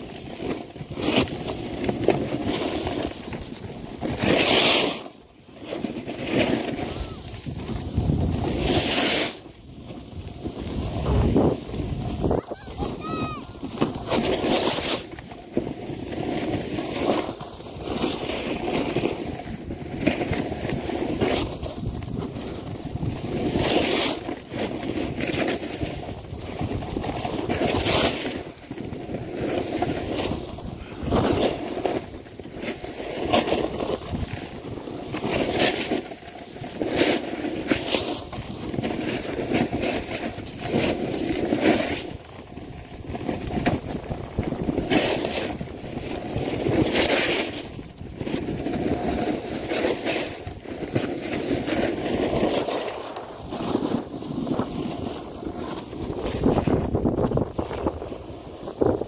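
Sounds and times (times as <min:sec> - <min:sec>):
snowboard scraping over snow: 0:00.0 - 0:59.0
wind rushing past microphone: 0:10.1 - 0:14.8, 0:56.0 - 0:59.0.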